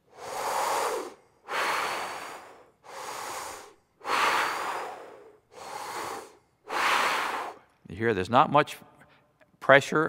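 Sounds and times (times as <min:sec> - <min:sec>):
man breathing deeply: 0:00.0 - 0:07.8.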